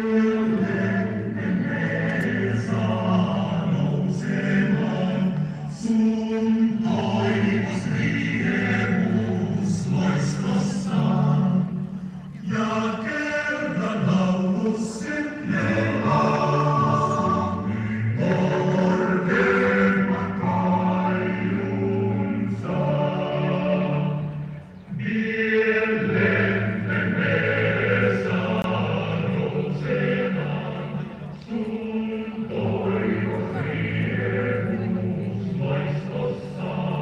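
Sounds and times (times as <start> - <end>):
choir singing sustained notes: 0.0 - 37.0.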